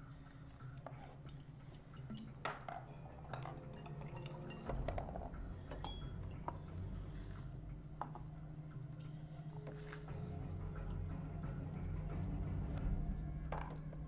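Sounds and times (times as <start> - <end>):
glassware clinking: 1.3 - 6.6.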